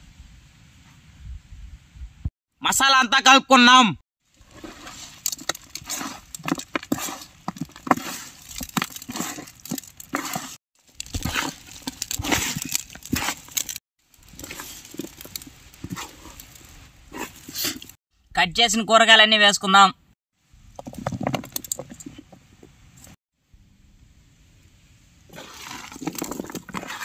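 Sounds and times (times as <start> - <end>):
wet squelches of kneading meat: 4.4 - 18.0.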